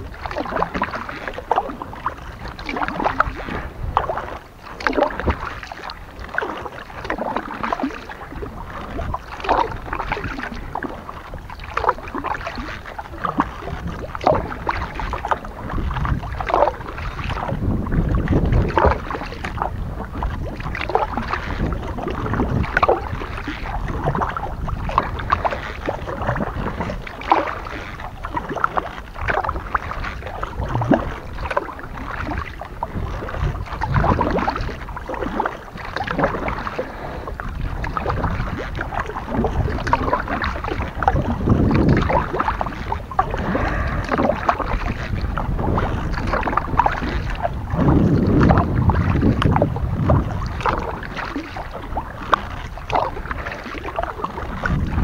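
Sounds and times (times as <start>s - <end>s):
paddle splashing in water: 0.0s - 55.0s
wind rumble on microphone: 0.0s - 55.0s.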